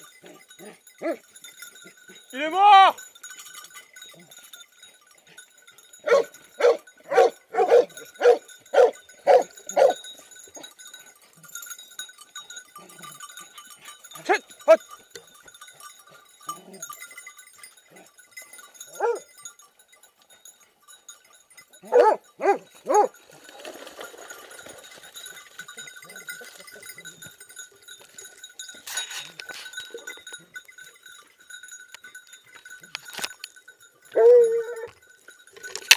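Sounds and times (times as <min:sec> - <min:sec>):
hounds baying: 0:00.2 - 0:02.4, 0:04.0 - 0:11.6, 0:12.3 - 0:19.5, 0:21.6 - 0:24.8, 0:34.0 - 0:35.1.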